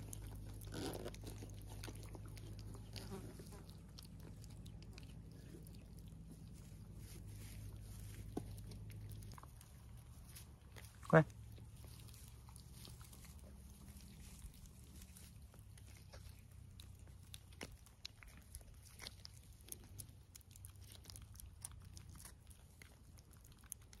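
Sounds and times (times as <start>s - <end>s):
kittens licking treat: 0.0s - 24.0s.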